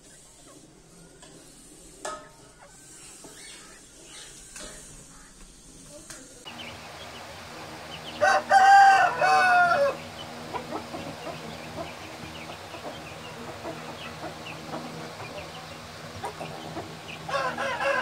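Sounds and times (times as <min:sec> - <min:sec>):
steady low hum: 0:00.0 - 0:18.0
faint chicken clucks: 0:06.5 - 0:18.0
rooster crowing: 0:07.6 - 0:11.6, 0:17.1 - 0:18.0.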